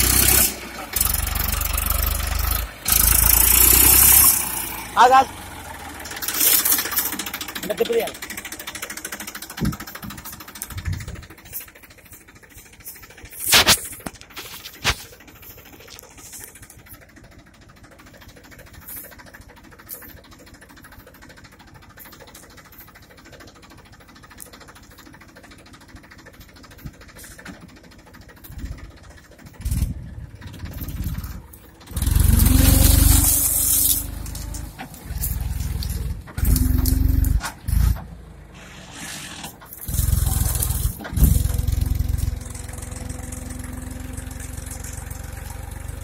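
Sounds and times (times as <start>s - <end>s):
tractor engine revving: 0.0s - 46.0s.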